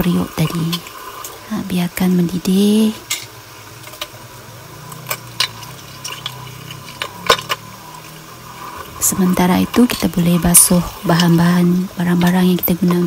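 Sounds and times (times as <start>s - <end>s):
low steady hum: 0.0s - 13.0s
soup boiling with popping bubbles: 0.0s - 13.0s.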